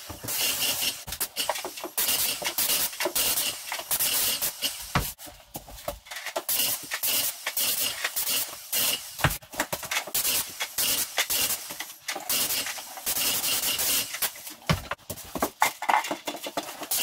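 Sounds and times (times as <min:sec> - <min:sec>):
paint spray gun hissing bursts: 0:00.3 - 0:05.0, 0:06.5 - 0:09.3, 0:10.2 - 0:11.7, 0:12.3 - 0:14.4.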